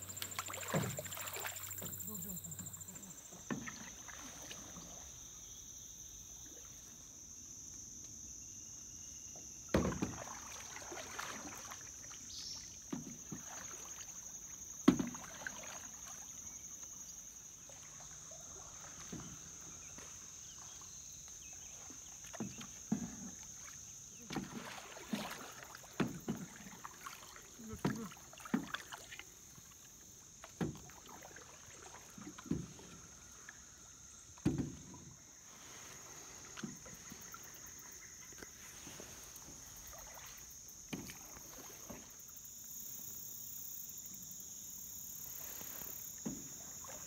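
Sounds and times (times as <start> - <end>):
paddle knocking canoe side: 0.0 - 5.0, 9.7 - 14.1, 14.8 - 16.2, 21.4 - 33.5, 34.3 - 35.4, 36.4 - 42.2, 46.2 - 47.0
canoe paddles pulling through water: 0.0 - 5.6, 9.1 - 47.0
high-pitched insect drone: 0.0 - 29.7.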